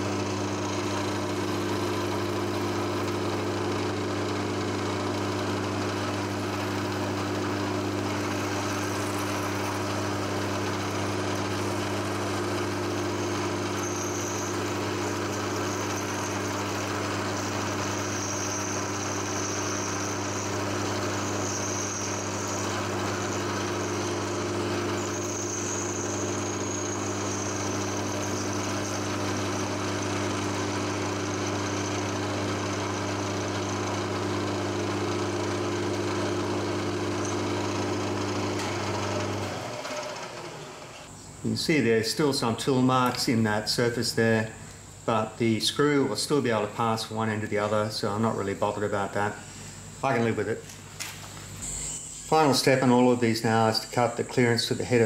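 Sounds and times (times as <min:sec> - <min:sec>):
milling machine cutting steel: 0:00.0 - 0:41.1, 0:51.6 - 0:55.0
motor hum: 0:00.0 - 0:41.6, 0:46.5 - 0:55.0
faint high whine: 0:07.3 - 0:29.8, 0:40.6 - 0:55.0.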